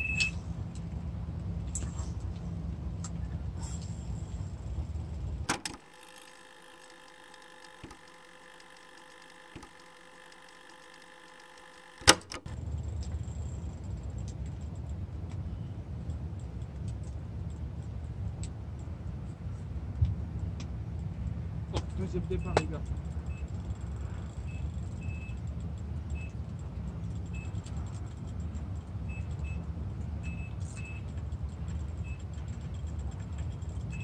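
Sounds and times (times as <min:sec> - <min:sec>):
sharp clicks: 0:05.4 - 0:15.4.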